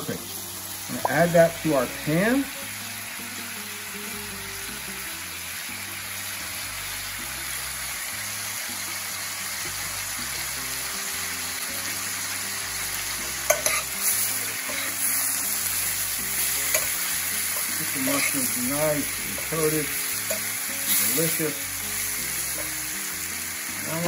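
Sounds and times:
chicken and mushrooms sizzling: 0.0 - 24.0
metal tongs clacking against pan: 13.5 - 15.0, 16.6 - 18.6, 20.2 - 21.1.

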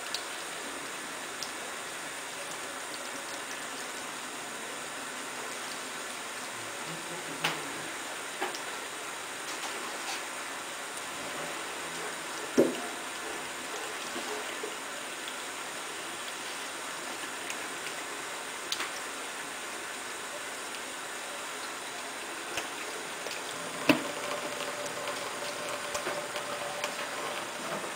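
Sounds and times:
tap water running into sink: 12.5 - 13.0, 22.5 - 27.9.

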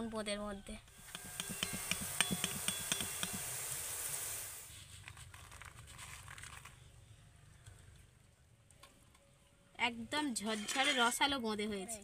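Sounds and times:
batter sizzling in hot oil: 0.9 - 4.8.

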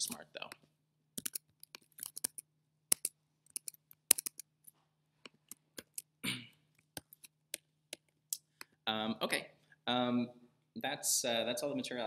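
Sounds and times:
keyboard and mouse clicks: 0.0 - 8.8.

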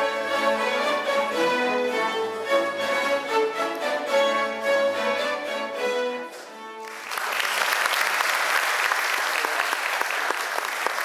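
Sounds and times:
string orchestra playing: 0.0 - 7.2
audience applause: 6.8 - 11.0.

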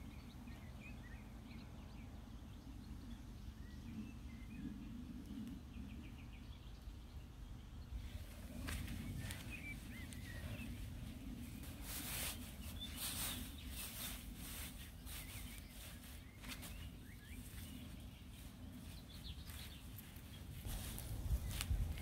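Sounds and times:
small birds chirping: 0.0 - 22.0
hands scraping in soil: 8.1 - 22.0.

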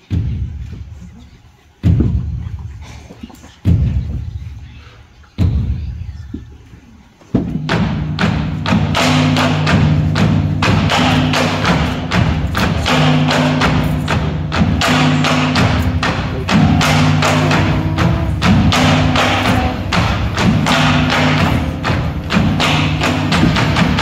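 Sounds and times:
sharp percussion strikes: 7.4 - 24.0.

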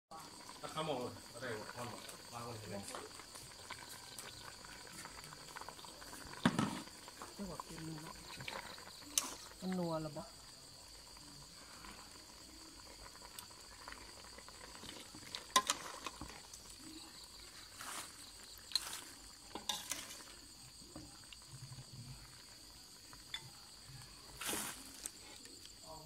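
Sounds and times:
crickets chirping: 0.1 - 26.0
metal ladle scraping a pot: 14.7 - 16.5, 19.5 - 20.4.

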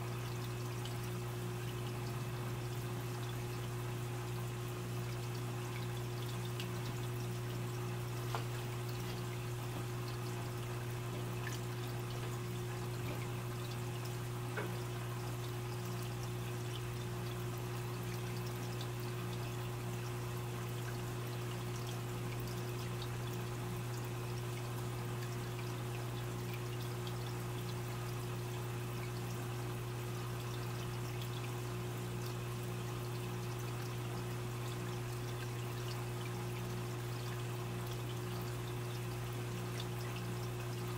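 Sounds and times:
pump humming: 0.0 - 40.9
water trickling and splashing: 0.0 - 40.9.

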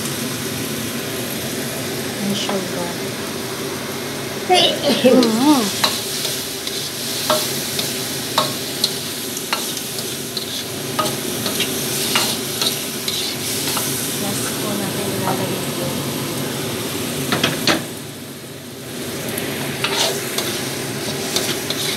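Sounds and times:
food sizzling in wok: 0.0 - 21.9
metal spatula scraping wok: 4.5 - 14.6, 19.8 - 21.9.

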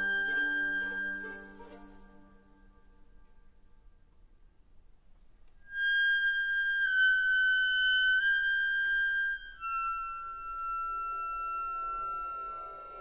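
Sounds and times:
clarinet holding high notes: 0.0 - 2.2, 5.7 - 13.0
soft orchestral strings: 0.0 - 13.0.

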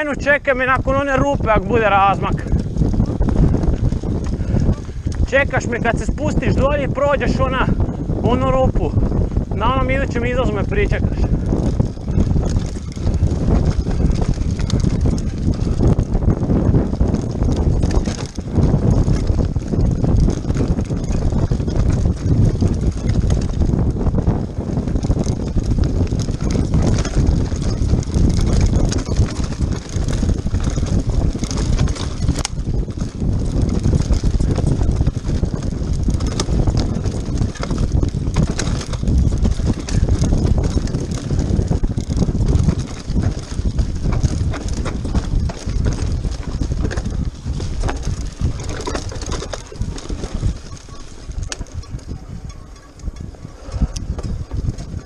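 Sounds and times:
bike rattling: 0.0 - 55.0
tyres crunching over stones: 24.8 - 52.1.

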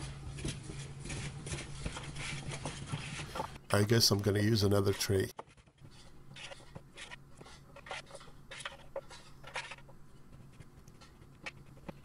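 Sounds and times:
spatula scraping metal tray: 4.9 - 9.9.

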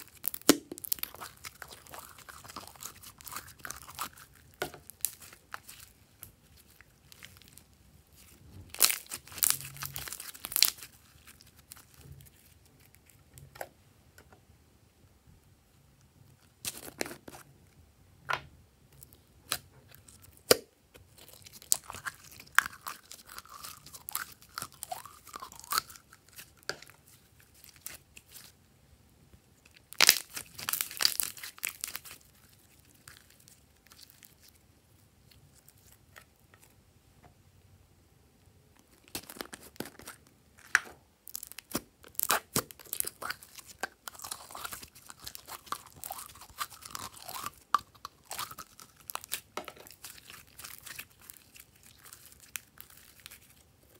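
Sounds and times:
slime crackling and popping: 0.0 - 13.2, 19.0 - 28.5, 29.7 - 34.6, 38.8 - 53.9.

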